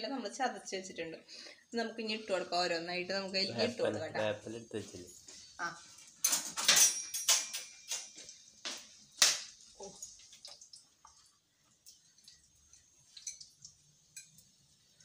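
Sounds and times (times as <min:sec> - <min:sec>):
kitchen utensils clinking: 0:06.1 - 0:08.5.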